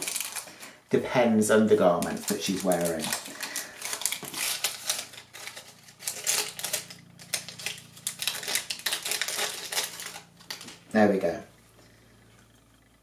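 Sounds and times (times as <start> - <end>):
plastic wrapping crinkling: 0.0 - 0.8, 1.7 - 10.9.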